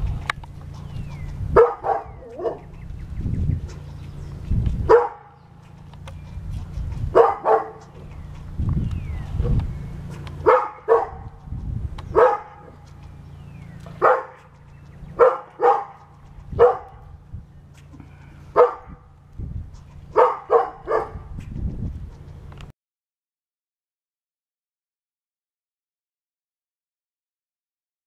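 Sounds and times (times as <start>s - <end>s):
dog barking: 1.5s - 2.7s, 4.8s - 5.4s, 7.1s - 7.9s, 10.4s - 11.4s, 12.1s - 12.9s, 14.0s - 17.1s, 18.5s - 19.0s, 20.1s - 21.3s.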